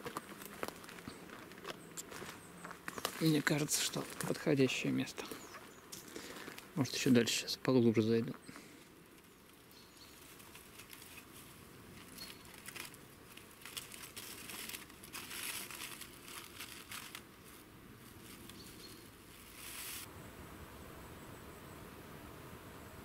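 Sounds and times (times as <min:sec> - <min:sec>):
foil and plastic bag crinkling: 0:02.9 - 0:04.5, 0:10.2 - 0:20.1.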